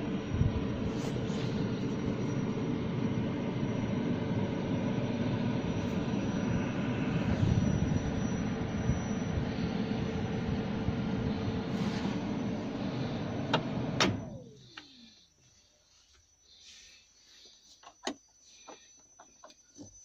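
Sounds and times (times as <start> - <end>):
constant hum: 0.0 - 20.0
diesel engine rumble in cab: 0.0 - 20.0.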